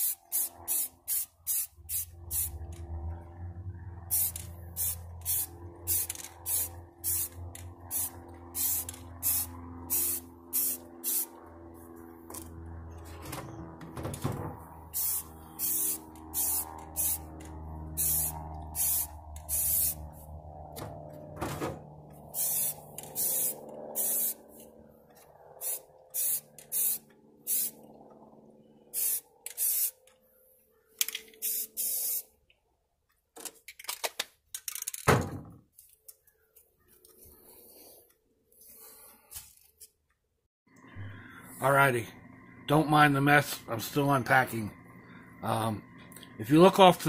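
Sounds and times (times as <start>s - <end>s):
aerosol spray hissing: 15.0s - 17.2s.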